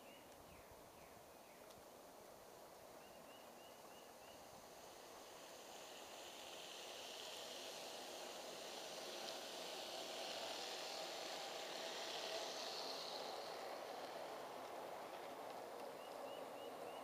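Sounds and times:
model train rolling on track: 3.8 - 17.0.

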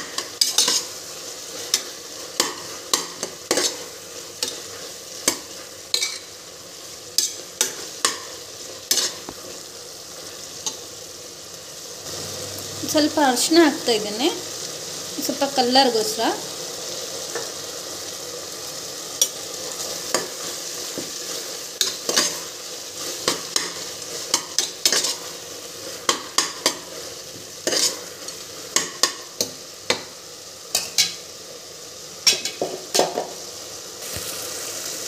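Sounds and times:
vegetables sizzling in oil: 0.0 - 35.0
spoon scraping pot: 21.8 - 25.3, 27.6 - 28.1.

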